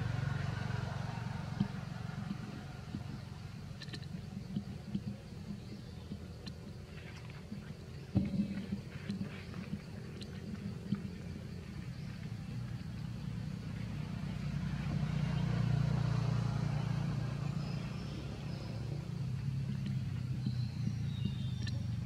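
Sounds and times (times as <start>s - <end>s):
passing vehicle engine rumble: 0.0s - 22.0s.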